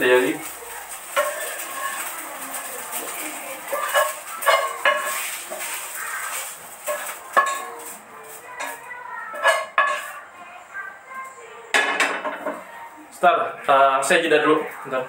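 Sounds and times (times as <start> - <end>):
spatula scraping frying pan: 0.5 - 10.3.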